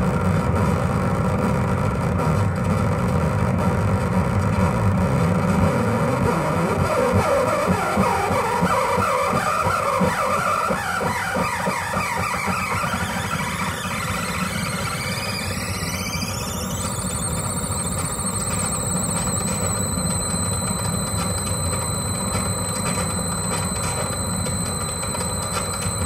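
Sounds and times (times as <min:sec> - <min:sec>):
low electronic noise bed: 0:00.0 - 0:26.0
high electronic tones gliding: 0:05.6 - 0:26.0.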